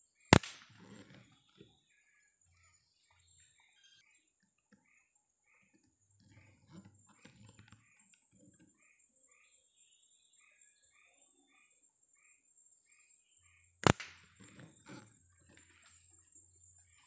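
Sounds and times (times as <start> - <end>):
air rifle shot: 0.3 - 0.7, 13.8 - 14.6.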